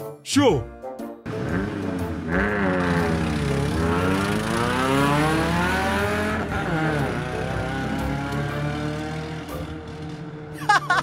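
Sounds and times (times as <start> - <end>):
cartoon toy car engine revving: 1.4 - 9.6.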